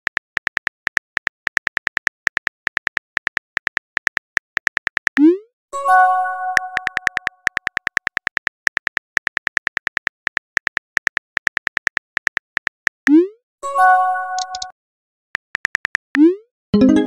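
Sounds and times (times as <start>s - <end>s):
phone keyboard typing clicks: 0.0s - 5.2s, 6.6s - 13.2s, 14.4s - 14.7s, 15.4s - 16.2s
multi-tone chime: 16.8s - 17.0s.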